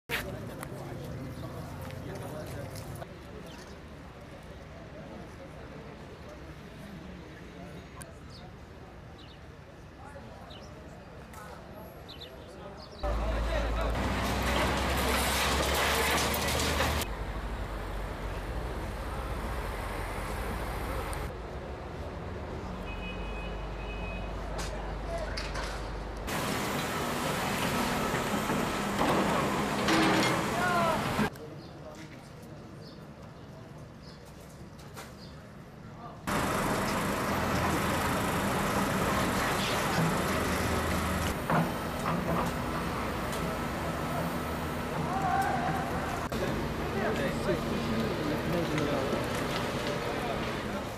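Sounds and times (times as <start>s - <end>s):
construction site noise: 0.1s - 50.9s
excavator diesel engines running: 13.0s - 21.3s, 25.8s - 31.3s, 36.3s - 50.9s.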